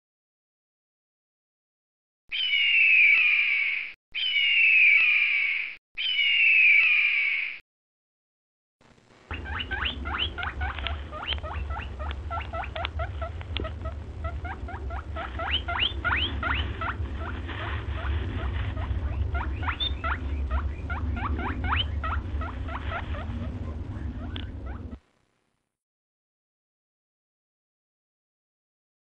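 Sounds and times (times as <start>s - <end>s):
low steady hum: 8.8s - 25.7s
small animal squeaking: 9.3s - 25.0s.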